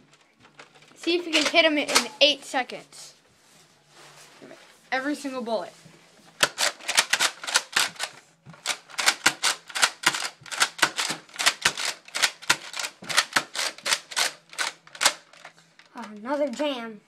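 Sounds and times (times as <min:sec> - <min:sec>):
dart blaster plastic clacks: 0:00.6 - 0:02.1, 0:06.4 - 0:15.5.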